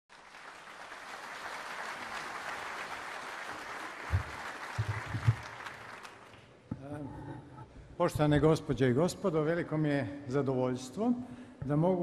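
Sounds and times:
audience applauding: 0.1s - 6.5s
low thumps: 4.1s - 5.4s.

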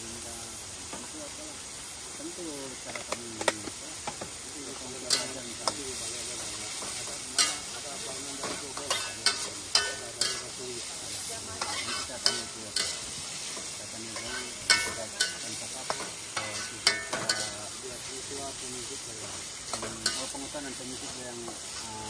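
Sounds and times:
food sizzling in hot oil: 0.0s - 22.0s
spatula scraping and knocking pan: 6.4s - 10.5s, 11.6s - 17.6s.

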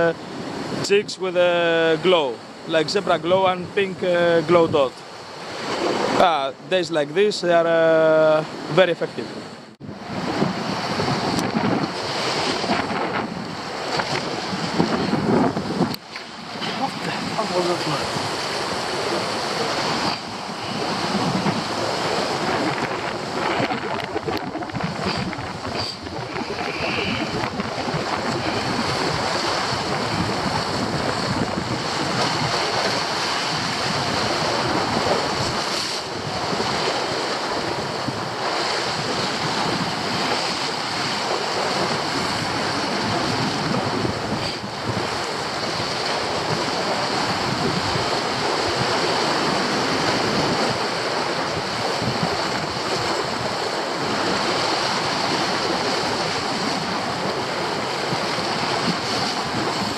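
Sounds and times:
surf breaking over rocks: 0.0s - 59.9s.

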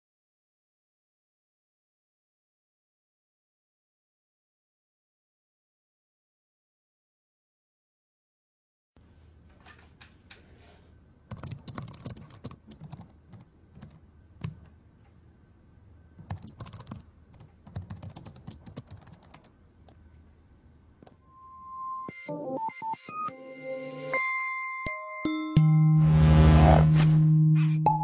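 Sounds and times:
faint low hum: 9.0s - 21.3s
keyboard typing: 11.3s - 14.7s, 16.2s - 20.0s.

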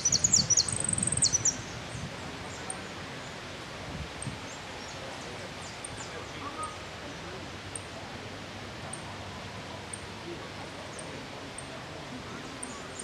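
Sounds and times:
finch singing trill: 0.0s - 1.8s
outdoor background noise: 0.0s - 13.0s.

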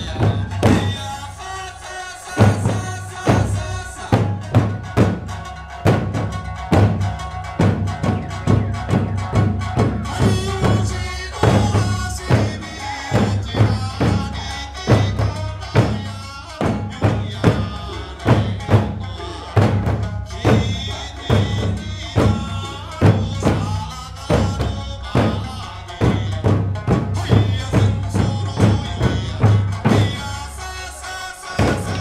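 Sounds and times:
barrel and hand drums beating: 0.0s - 32.0s
folk melody on plucked lute: 4.4s - 10.1s.

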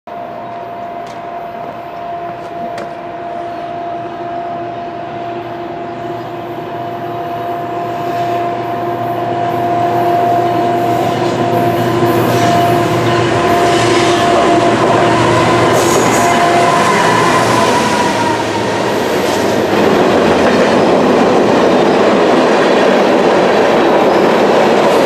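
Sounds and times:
freight train rumble: 0.1s - 25.0s
sharp high squeals: 10.0s - 19.5s.

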